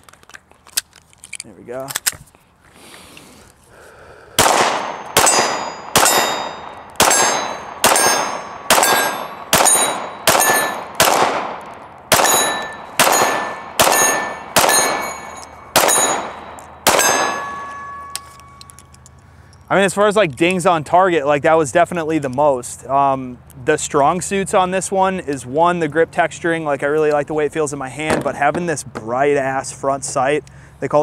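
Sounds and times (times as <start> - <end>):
pistol shots: 4.4 - 18.6
steel targets ringing: 4.8 - 11.1, 12.1 - 18.9.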